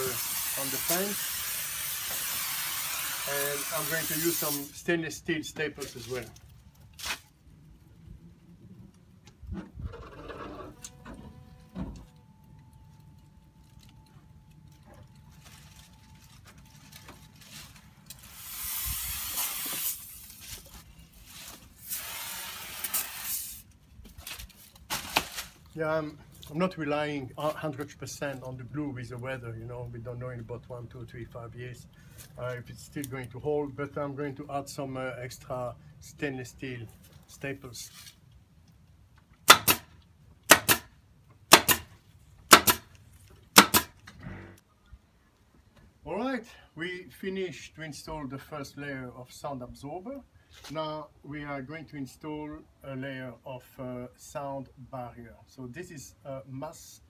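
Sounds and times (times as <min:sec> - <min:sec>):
spray can hissing: 0:00.0 - 0:04.8, 0:18.2 - 0:20.4, 0:21.8 - 0:23.6
pneumatic staple gun firing: 0:18.3 - 0:20.1, 0:21.9 - 0:23.6, 0:39.5 - 0:39.9, 0:40.5 - 0:40.9, 0:41.5 - 0:41.9, 0:42.5 - 0:42.9, 0:43.6 - 0:44.0.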